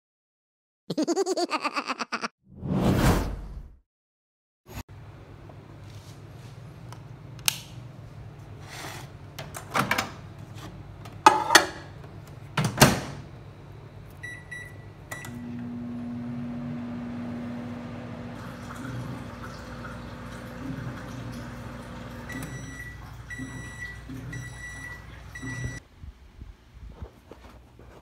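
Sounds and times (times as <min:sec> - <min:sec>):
microwave humming: 0:04.9 - 0:25.8
keypad beeps: 0:22.3 - 0:25.8.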